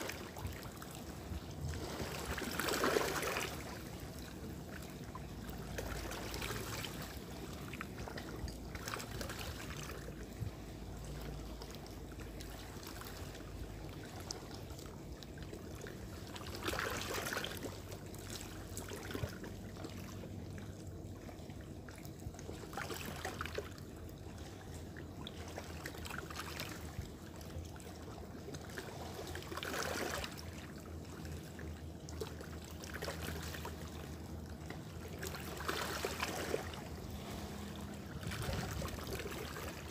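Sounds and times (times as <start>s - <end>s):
sea water lapping on rocks: 0.0s - 20.3s, 21.7s - 31.6s, 32.2s - 39.9s.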